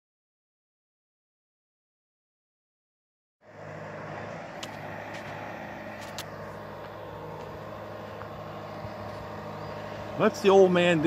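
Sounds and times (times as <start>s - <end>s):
engine droning: 3.4s - 11.0s.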